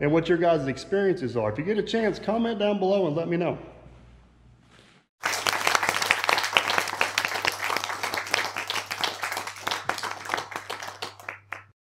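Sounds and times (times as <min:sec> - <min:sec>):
crowd clapping: 0:05.2 - 0:11.8.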